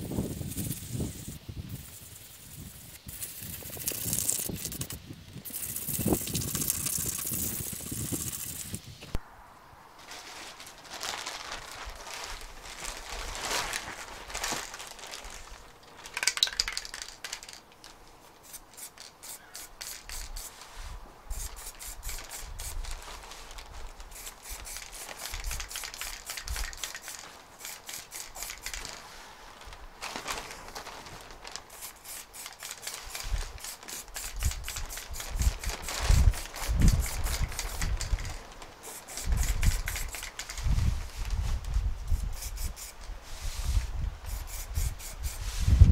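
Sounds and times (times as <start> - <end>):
aerosol can spraying bursts: 0.2 - 8.8, 18.4 - 20.6, 21.3 - 22.8, 24.1 - 28.8, 31.7 - 38.1, 38.8 - 40.6, 42.1 - 43.0, 44.3 - 45.7.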